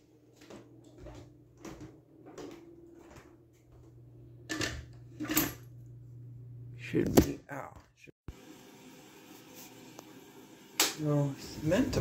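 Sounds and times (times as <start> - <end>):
footsteps going up stairs: 0.2 - 4.0.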